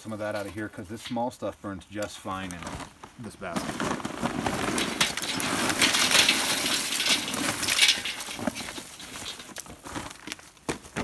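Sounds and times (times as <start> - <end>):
charcoal clattering into metal basket: 4.2 - 9.8.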